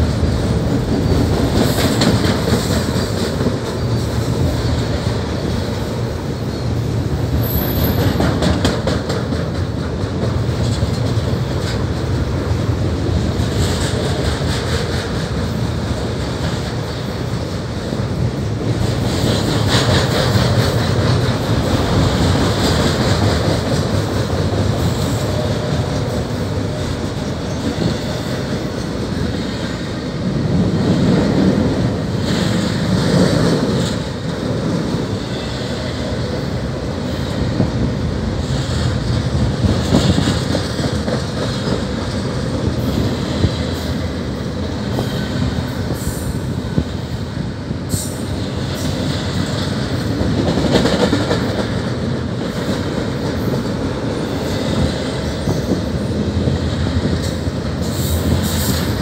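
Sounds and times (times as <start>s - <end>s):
rumble of train wheels on rail: 0.0s - 59.0s
clicks and clanks of couplings: 0.1s - 3.8s.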